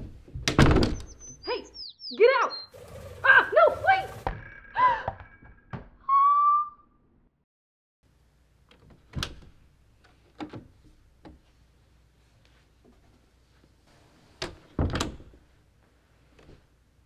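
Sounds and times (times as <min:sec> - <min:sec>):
interior door opening and shutting: 0:00.0 - 0:01.4, 0:08.7 - 0:09.6, 0:14.4 - 0:15.4.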